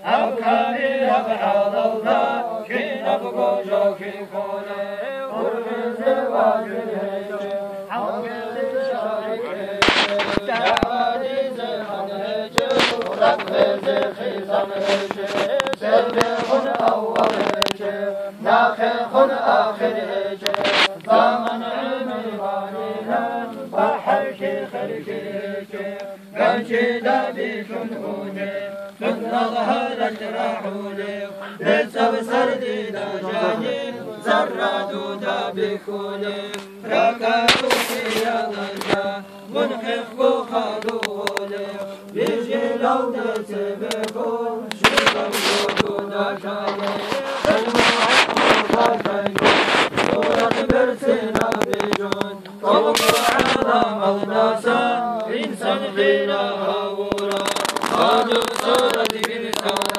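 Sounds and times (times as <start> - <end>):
men chanting in unison: 0.0 - 59.9
bursts of rushing noise: 9.7 - 10.9, 44.8 - 52.1.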